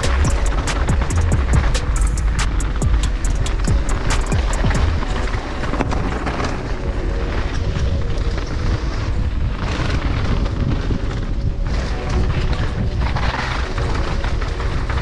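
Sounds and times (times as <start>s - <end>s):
sharp clicks and rattles: 0.0s - 6.4s
bike tyre and trail noise: 0.0s - 15.0s
wind rushing over microphone: 0.0s - 15.0s.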